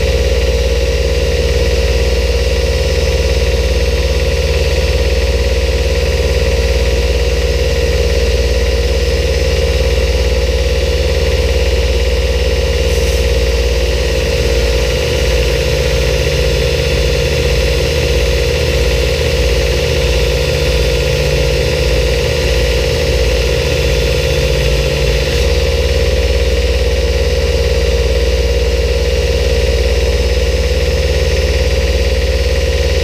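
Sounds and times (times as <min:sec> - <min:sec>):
belt grinder running: 0:00.0 - 0:28.5.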